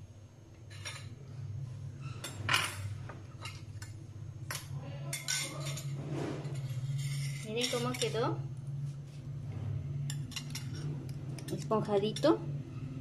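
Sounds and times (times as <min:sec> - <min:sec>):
steady low hum: 0:00.0 - 0:13.0
metal utensil clinking on plate: 0:02.2 - 0:08.2, 0:10.1 - 0:12.4.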